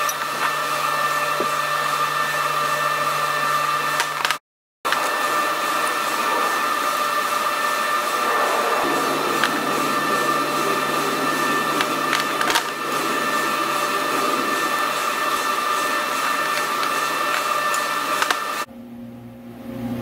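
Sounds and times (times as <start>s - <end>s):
shop machinery humming: 0.0s - 18.7s
lower machine hum: 4.9s - 20.0s.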